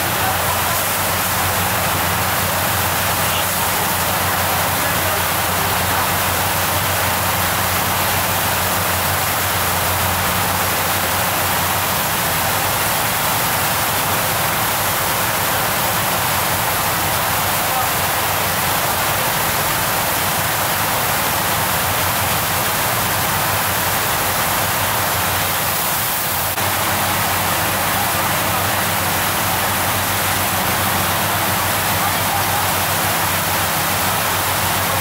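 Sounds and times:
boat engine droning: 0.0s - 35.0s
churning water rushing: 0.0s - 35.0s.

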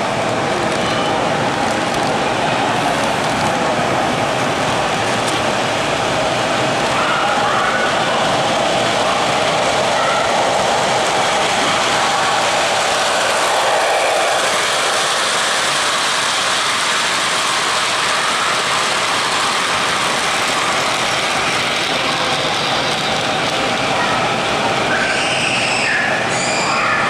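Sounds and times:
model train motor running: 0.2s - 27.0s
model train wheels clattering on rails: 7.9s - 24.9s.

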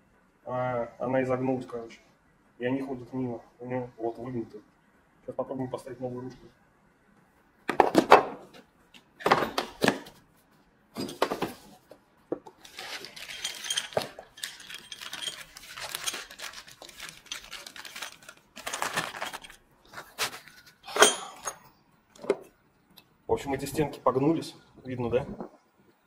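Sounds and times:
rustling: 12.6s - 20.8s
metallic rattles: 12.9s - 18.1s.

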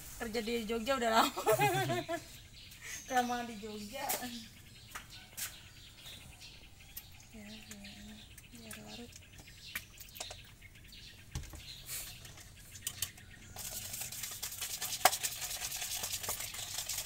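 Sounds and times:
spoon stirring in plastic cup: 12.2s - 17.0s.

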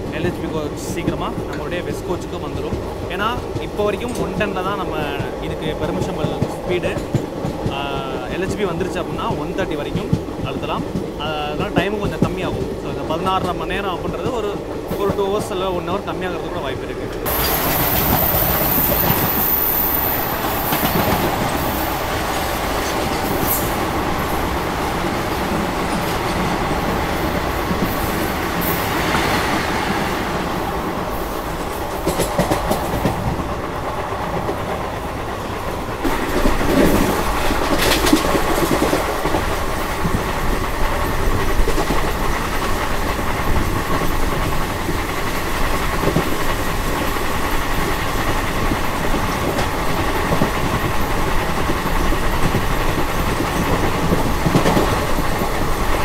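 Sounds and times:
train rumbling: 0.0s - 56.0s
wheels clattering over rail joints: 17.0s - 56.0s.

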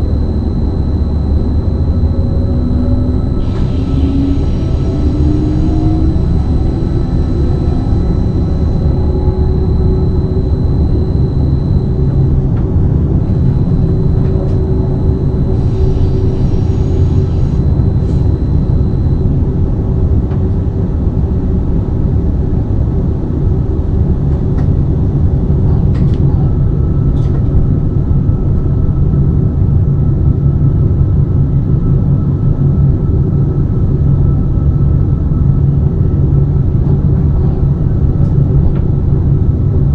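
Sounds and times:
faint steady tones: 0.0s - 20.2s
train rumbling: 0.0s - 32.2s, 33.4s - 39.9s.

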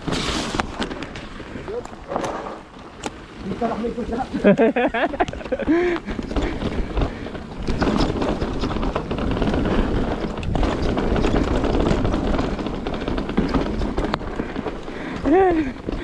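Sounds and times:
bike knocks and rattles: 0.0s - 16.0s
bike tyre noise: 0.0s - 16.0s
wind rumble on microphone: 5.1s - 16.0s.

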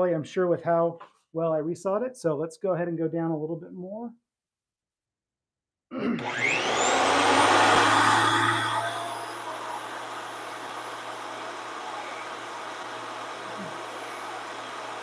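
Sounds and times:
thickness planer whining: 6.2s - 15.0s.

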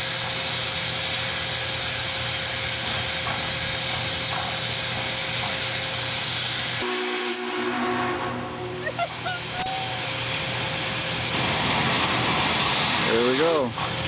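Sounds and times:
steam locomotive hissing: 0.0s - 14.0s.

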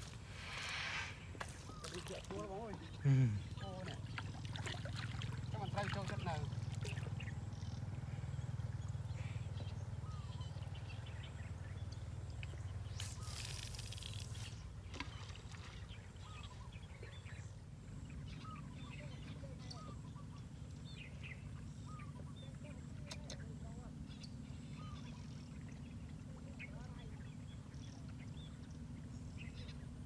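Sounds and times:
birds chirping: 0.0s - 30.0s
brief hiss: 0.4s - 1.3s.

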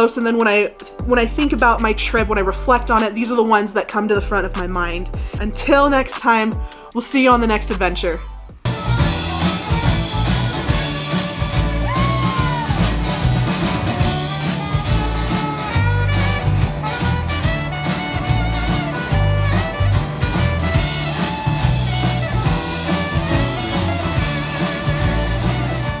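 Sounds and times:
bass line: 1.0s - 3.0s, 4.2s - 6.1s, 7.4s - 26.0s
guitar: 7.4s - 26.0s
live band playing swing music: 8.7s - 26.0s
saxophone: 8.7s - 26.0s.

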